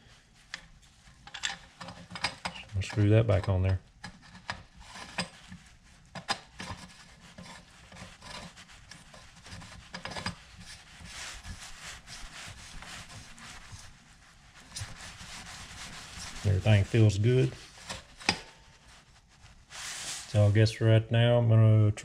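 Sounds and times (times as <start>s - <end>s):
small clicks of handling metal: 0.5s - 2.7s.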